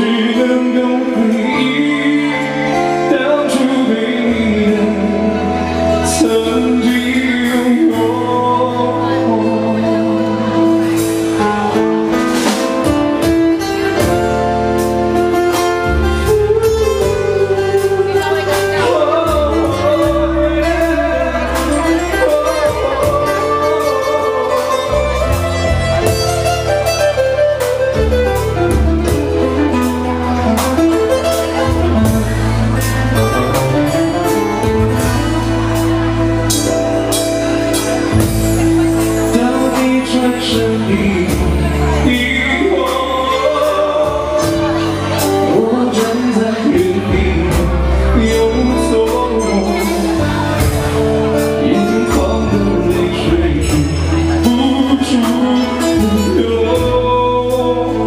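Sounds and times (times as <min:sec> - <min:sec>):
person singing into microphone: 0:00.0 - 0:27.7, 0:31.0 - 0:58.0
bass line: 0:00.0 - 0:58.0
keyboard accompaniment: 0:00.0 - 0:58.0
steady beat: 0:19.3 - 0:42.0.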